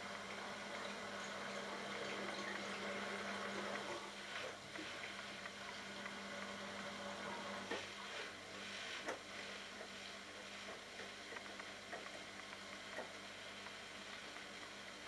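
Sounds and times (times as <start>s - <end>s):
washing machine motor hum: 0.0s - 15.0s.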